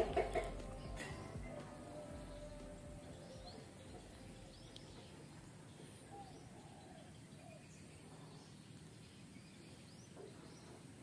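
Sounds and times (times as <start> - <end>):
faint bird calls: 0.0 - 11.0.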